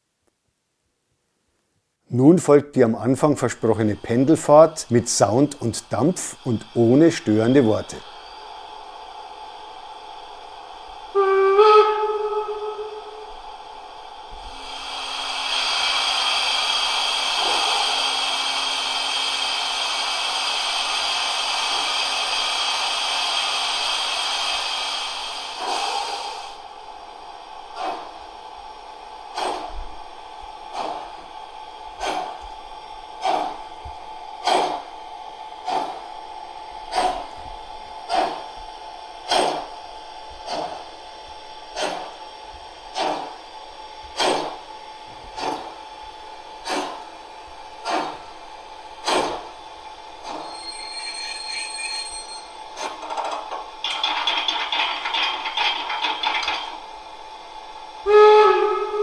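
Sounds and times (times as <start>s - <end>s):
steam hiss: 3.2s - 43.5s, 44.1s - 53.0s
locomotive exhaust chuffs: 29.2s - 42.2s.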